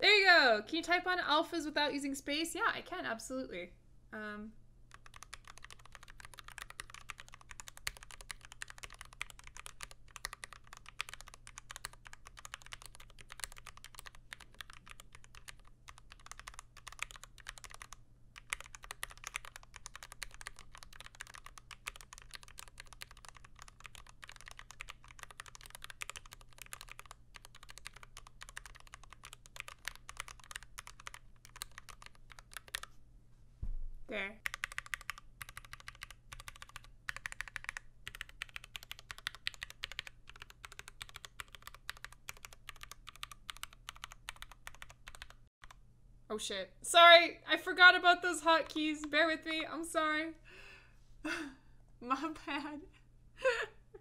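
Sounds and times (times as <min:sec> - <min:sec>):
fast keyboard typing: 0:04.9 - 0:32.9, 0:34.4 - 0:45.8.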